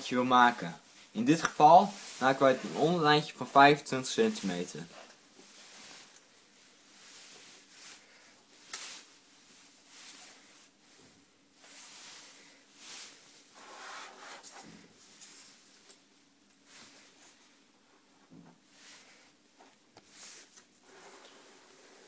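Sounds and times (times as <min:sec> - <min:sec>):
hands rubbing over tabletop: 0:00.9 - 0:03.1, 0:04.2 - 0:15.8.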